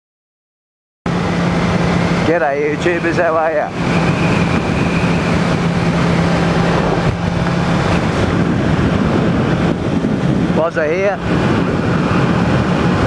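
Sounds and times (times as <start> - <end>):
motorcycle engine running: 1.1 - 10.6
wind rush on microphone: 1.1 - 13.0.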